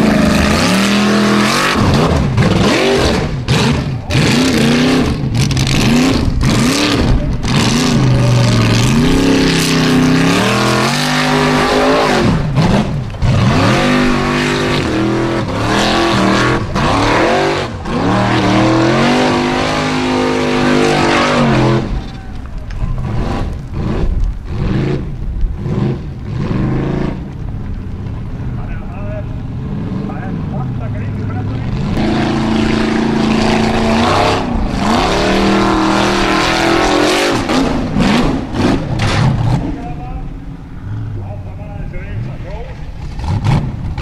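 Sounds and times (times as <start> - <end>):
buggy engine revving: 0.0 - 44.0
low rough noise with cracks: 21.9 - 32.0, 38.5 - 44.0.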